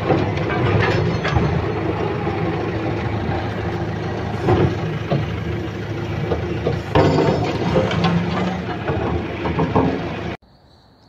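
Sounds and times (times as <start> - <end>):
excavator diesel engine running: 0.0 - 10.4
metallic clatter: 0.0 - 10.4
knocks: 6.3 - 10.4.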